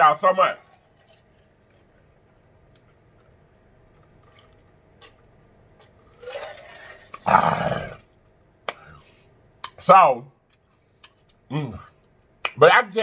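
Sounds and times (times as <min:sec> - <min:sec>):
man drinking: 0:03.9 - 0:08.1.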